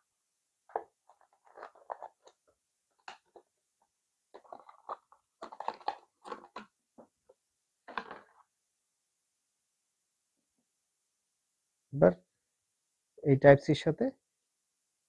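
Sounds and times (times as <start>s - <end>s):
plastic packaging tray crackling: 0.7s - 2.4s, 4.4s - 6.7s.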